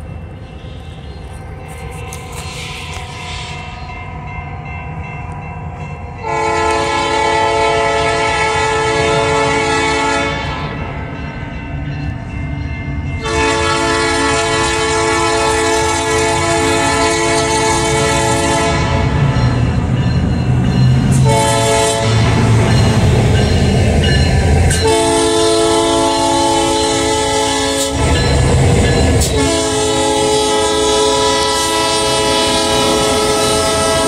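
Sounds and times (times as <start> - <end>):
diesel locomotive engines rumbling: 0.0 - 34.0
train air horn blasts: 6.2 - 10.9, 13.2 - 19.4, 21.1 - 22.6, 24.7 - 28.4, 29.2 - 34.0.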